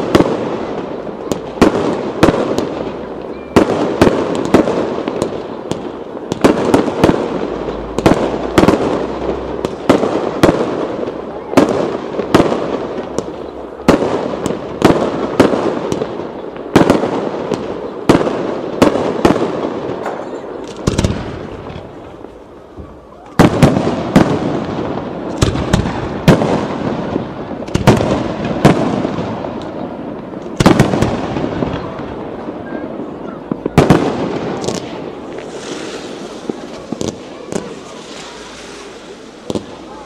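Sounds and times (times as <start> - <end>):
firework shells bursting: 33.6 - 40.0.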